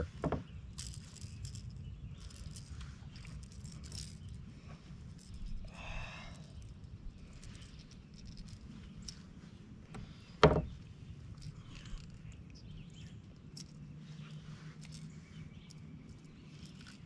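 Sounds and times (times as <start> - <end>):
clicks and rustles of handling: 6.5 - 17.0.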